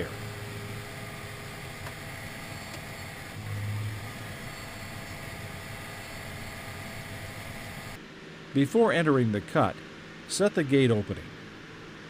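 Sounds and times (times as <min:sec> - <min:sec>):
tractor engine running: 0:00.0 - 0:08.0.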